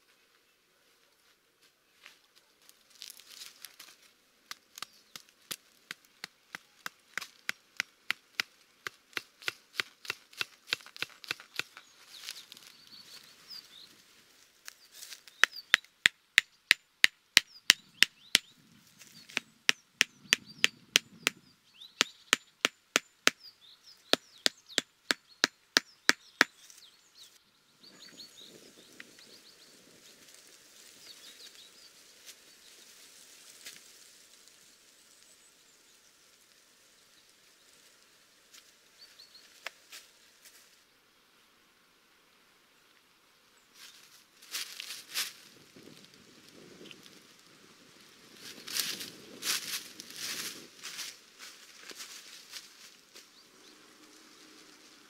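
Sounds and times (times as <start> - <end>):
hatchet pounding tent stakes: 4.8 - 11.8.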